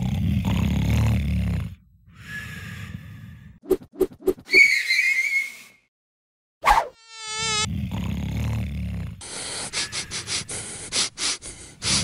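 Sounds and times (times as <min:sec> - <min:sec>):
cartoon fly buzzing: 0:06.6 - 0:07.7.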